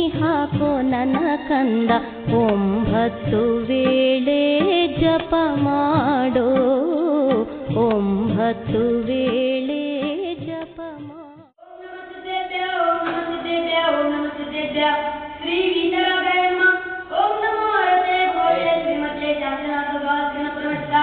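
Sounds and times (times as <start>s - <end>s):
boys singing in unison: 11.7s - 21.0s.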